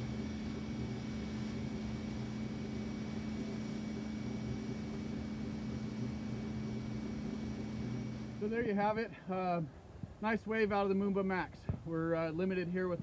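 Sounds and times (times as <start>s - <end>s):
boat engine droning: 0.0s - 9.7s.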